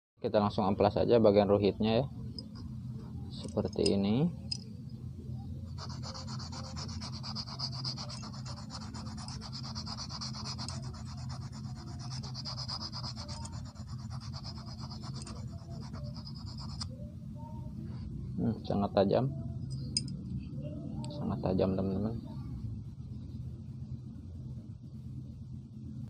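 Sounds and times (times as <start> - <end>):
wire scraping on sandpaper: 5.7 - 16.9.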